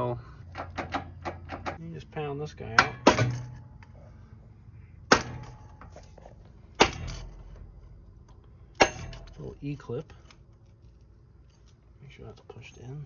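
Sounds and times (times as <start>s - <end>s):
hammer striking metal: 2.8s - 3.8s, 5.1s - 6.0s, 6.8s - 7.4s, 8.8s - 9.4s.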